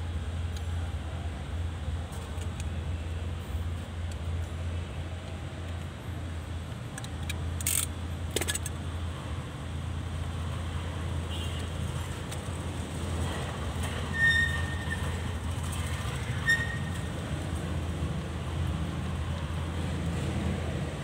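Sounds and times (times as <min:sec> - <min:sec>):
short high squeaks: 0:13.9 - 0:15.3, 0:16.2 - 0:17.1.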